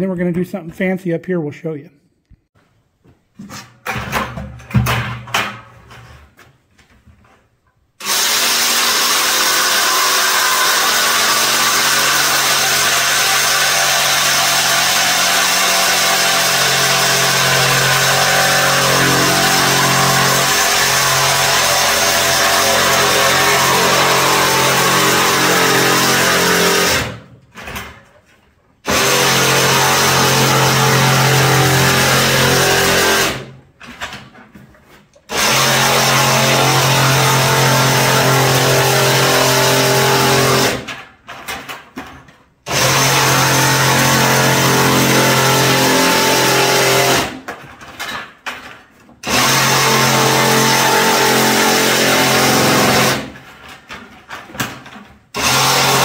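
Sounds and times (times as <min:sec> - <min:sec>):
reciprocating saw cutting plastic: 0:08.0 - 0:27.2, 0:28.9 - 0:33.6, 0:35.3 - 0:41.0, 0:42.7 - 0:47.5, 0:49.2 - 0:53.8, 0:55.4 - 0:56.0.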